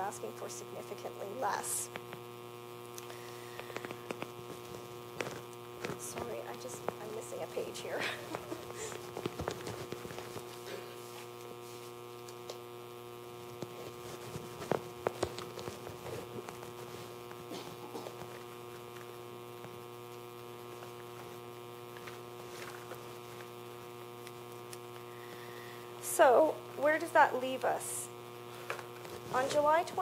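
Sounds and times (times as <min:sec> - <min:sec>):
electrical mains hum: 0:00.0 - 0:30.0
paper sheets rustling: 0:08.4 - 0:11.9.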